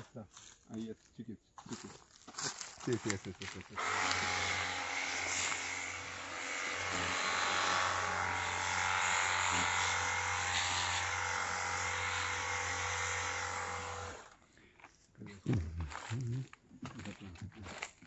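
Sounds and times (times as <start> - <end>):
electric pump hum: 3.8 - 14.4.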